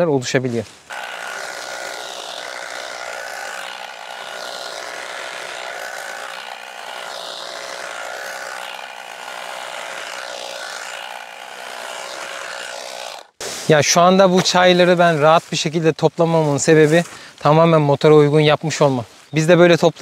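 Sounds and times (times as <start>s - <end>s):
electric tea harvester whine: 0.9s - 13.4s.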